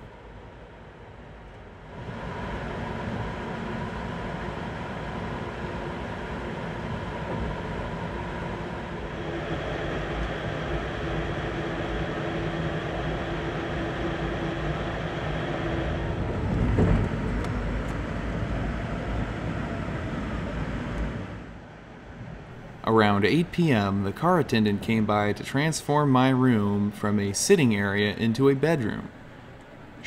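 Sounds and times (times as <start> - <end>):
train wheels on rails rumbling: 6.8 - 20.4.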